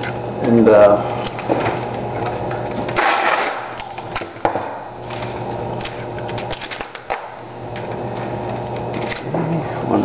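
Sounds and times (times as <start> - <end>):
packing tape ripping off dispenser: 2.7 - 4.4, 5.0 - 7.5.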